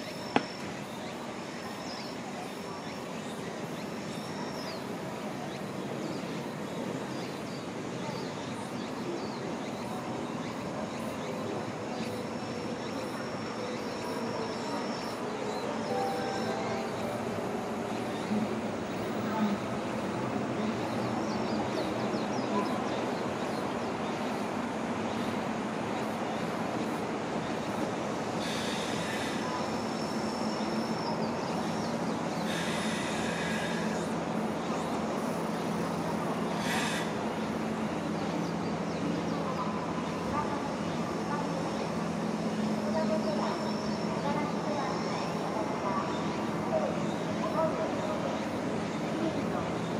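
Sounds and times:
train rail running noise: 0:00.0 - 0:49.9
faint high whine: 0:12.6 - 0:21.0
thin high-pitched tones: 0:15.9 - 0:17.7.

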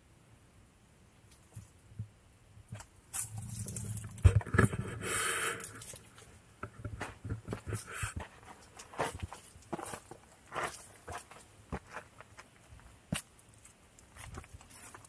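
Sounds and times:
rustle: 0:00.0 - 0:15.0
footsteps on dirt and stones: 0:02.7 - 0:04.8, 0:05.7 - 0:15.0.

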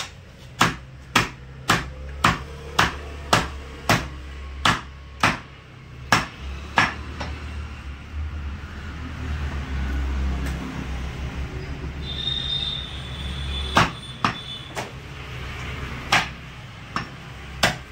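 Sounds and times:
cleaver chopping on wooden block: 0:00.0 - 0:05.5, 0:06.1 - 0:07.4, 0:13.8 - 0:14.4, 0:16.1 - 0:17.9.

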